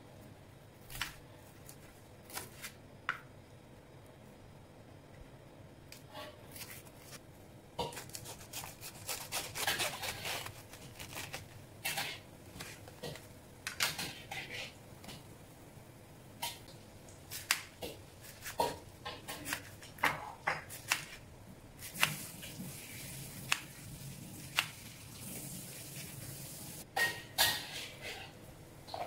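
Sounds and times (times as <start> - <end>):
knife cutting through wrapped cabbage: 6.5 - 7.2, 7.8 - 13.2.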